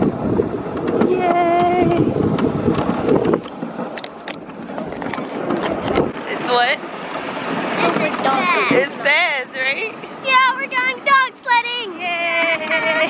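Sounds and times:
wind on microphone: 0.0s - 9.1s.

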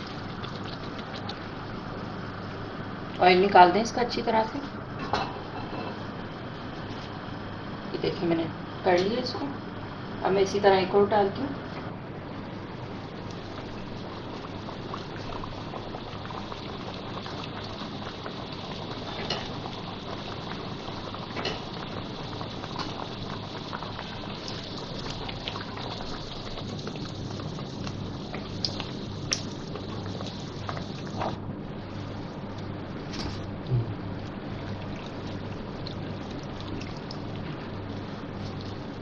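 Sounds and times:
food sizzling in hot oil: 12.9s - 31.4s.

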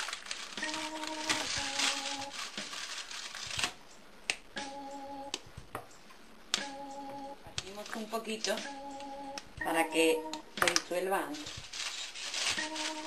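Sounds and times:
wrapper crinkling and tearing: 0.0s - 3.8s, 11.3s - 13.0s.

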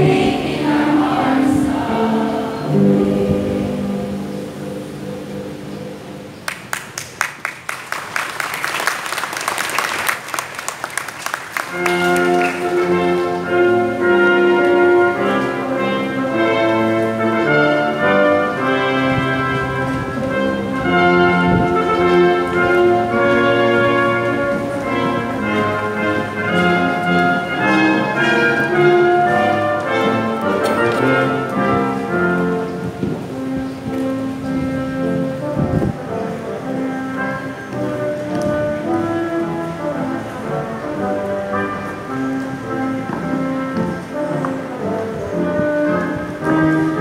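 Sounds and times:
choir singing: 0.0s - 4.8s
orchestral music with brass: 0.0s - 6.2s, 11.2s - 47.0s
audience clapping: 6.4s - 13.3s.

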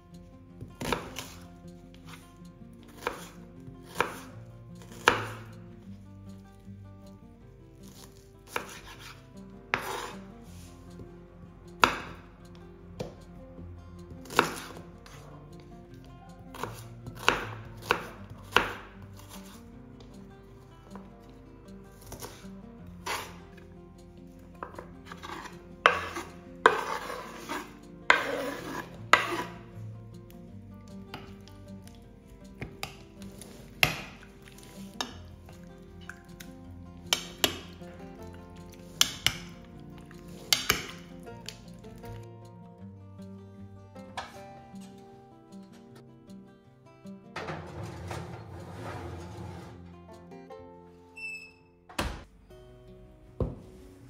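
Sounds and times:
soft background music: 0.0s - 54.0s
knife chopping on cutting board: 0.8s - 1.4s, 3.0s - 5.5s, 7.9s - 10.2s, 11.8s - 12.2s, 14.2s - 15.2s, 16.5s - 19.6s, 23.0s - 23.3s, 24.6s - 29.6s, 32.6s - 35.2s, 37.1s - 37.8s, 39.0s - 39.6s, 40.4s - 41.1s.

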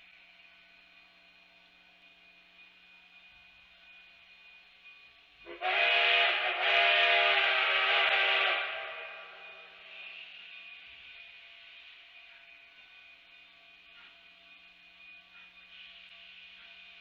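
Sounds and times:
steam whistle blasts: 5.5s - 10.4s
steam hissing: 5.5s - 17.0s.

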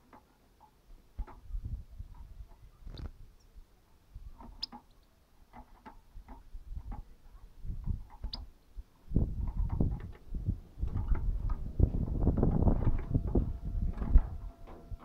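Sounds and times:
high bird chirps: 4.5s - 4.8s
rumbling knocks: 9.4s - 15.0s.

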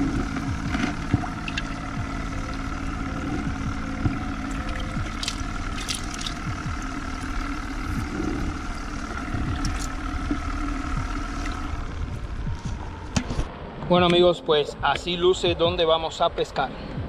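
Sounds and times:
aerator hose bubbling: 0.0s - 12.3s
low rumble: 0.0s - 14.1s
steady hum: 0.0s - 17.0s
water splashing and trickling: 0.6s - 11.9s.

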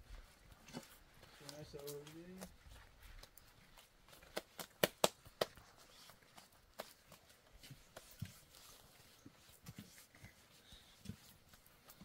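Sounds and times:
dough slapped between palms: 4.2s - 5.6s.

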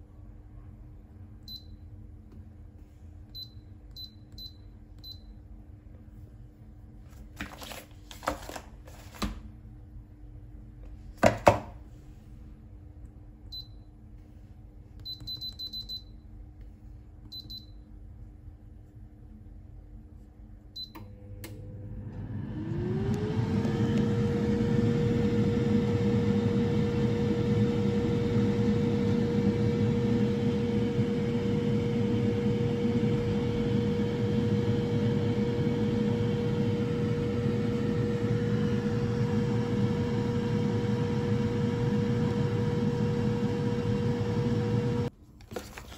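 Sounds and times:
air fryer fan humming: 20.8s - 45.1s.

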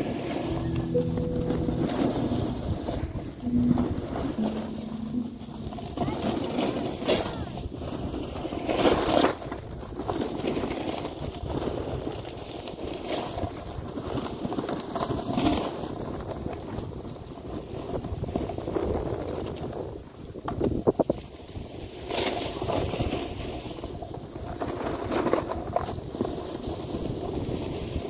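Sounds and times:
snowboard scraping over snow: 21.4s - 28.0s.

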